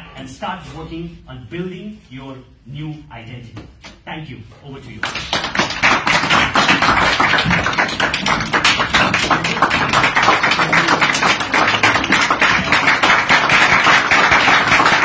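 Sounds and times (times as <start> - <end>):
people applauding: 5.0 - 15.0.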